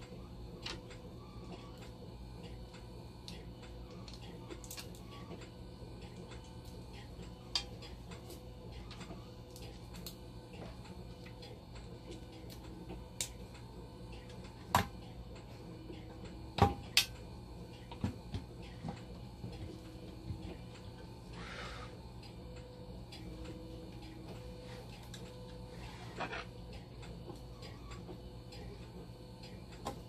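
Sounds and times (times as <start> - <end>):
low steady hum: 0.0 - 30.0
metal parts clicking and tapping: 3.3 - 5.5.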